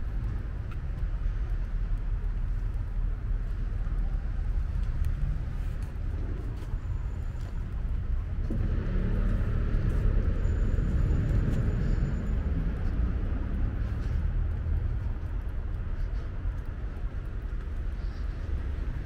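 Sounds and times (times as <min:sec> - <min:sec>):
traffic rumble: 0:00.0 - 0:19.0
car passing by: 0:08.4 - 0:14.5.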